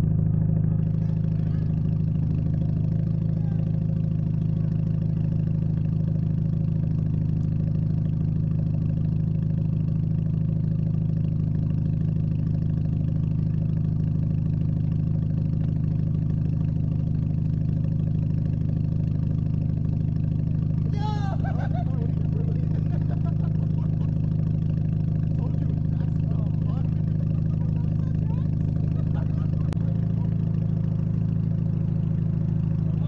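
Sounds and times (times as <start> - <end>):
car exhaust idling: 0.0 - 33.0.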